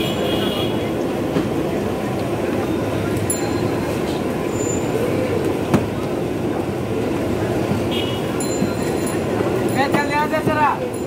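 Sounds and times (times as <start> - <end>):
street noise: 0.0 - 11.0.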